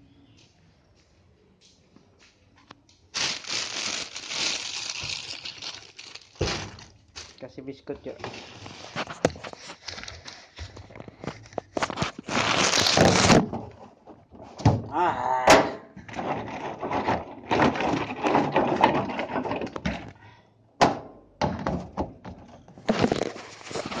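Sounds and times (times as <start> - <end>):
plastic bags rustling: 3.1 - 13.5, 22.8 - 24.0.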